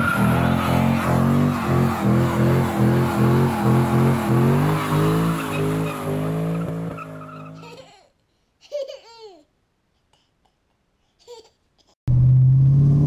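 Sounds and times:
car engine revving high: 0:00.0 - 0:07.6
baby laughing: 0:07.6 - 0:08.0, 0:08.6 - 0:09.5, 0:11.2 - 0:12.0.

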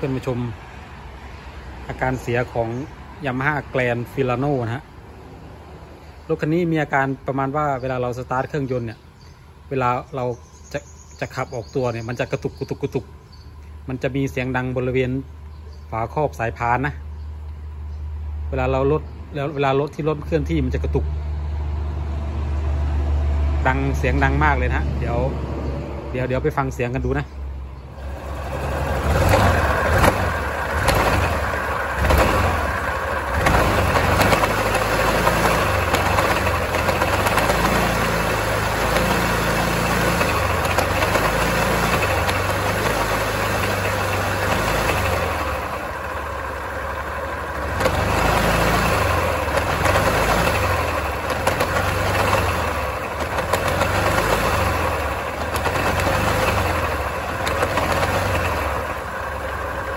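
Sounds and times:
scooter engine revving: 0:27.9 - 0:59.9.

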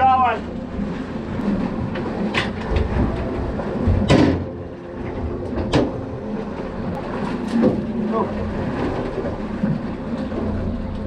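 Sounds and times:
knocks and thumps on boat: 0:00.0 - 0:11.0
low steady rumble: 0:00.0 - 0:11.0.

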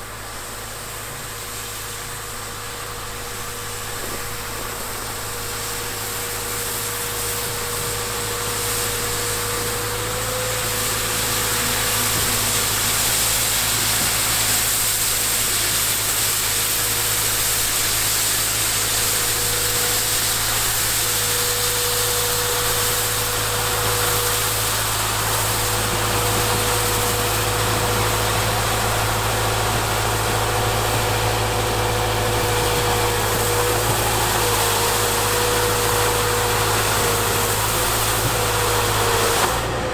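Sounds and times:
diesel engine under load: 0:00.0 - 0:39.9
rotary sweeper brushing snow: 0:00.0 - 0:39.9.

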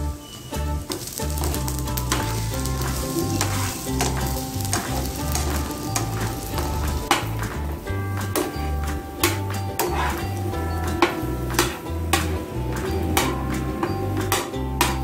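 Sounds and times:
background music: 0:00.0 - 0:15.0
food sizzling in a pan: 0:00.8 - 0:07.4.

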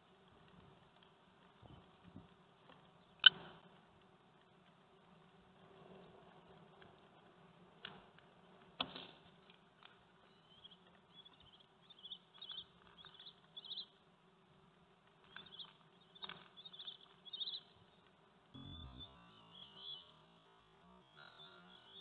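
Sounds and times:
low hum: 0:18.5 - 0:22.0.

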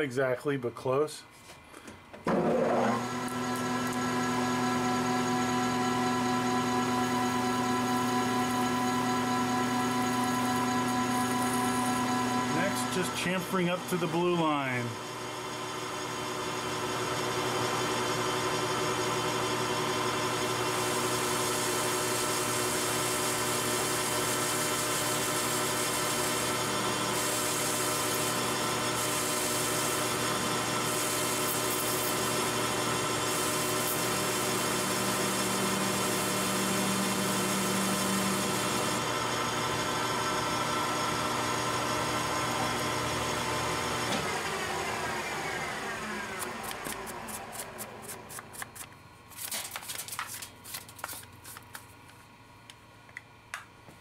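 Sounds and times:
lathe whining: 0:02.3 - 0:48.3
cutting tool hiss: 0:20.8 - 0:39.0.

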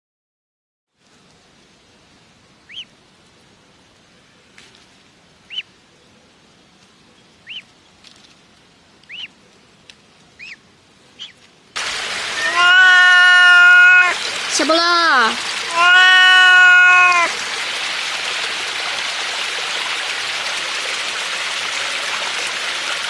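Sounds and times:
faint steady hiss: 0:00.9 - 0:15.8
goslings peeping: 0:02.7 - 0:02.9, 0:05.5 - 0:05.7, 0:07.4 - 0:07.7, 0:09.1 - 0:09.3, 0:10.4 - 0:10.6, 0:11.2 - 0:11.4, 0:12.4 - 0:14.1, 0:15.7 - 0:17.2.

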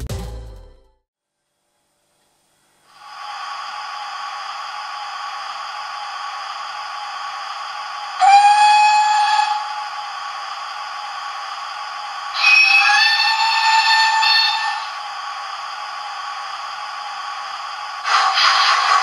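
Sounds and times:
steam hiss from small speaker: 0:02.8 - 0:19.0
steam whistle blast: 0:08.2 - 0:10.0, 0:12.3 - 0:15.0.

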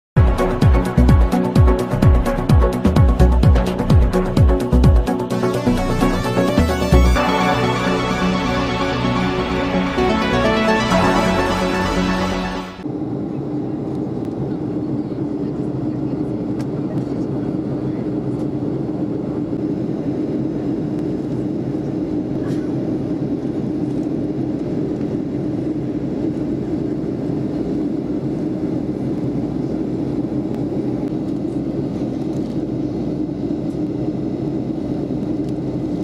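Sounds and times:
airplane cabin engine hum: 0:00.2 - 0:36.0.

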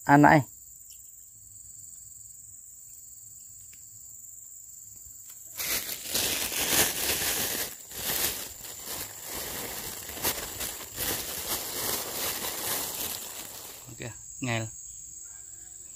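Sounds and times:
high insect drone: 0:00.0 - 0:15.9
plastic bag crinkling: 0:05.5 - 0:14.0.

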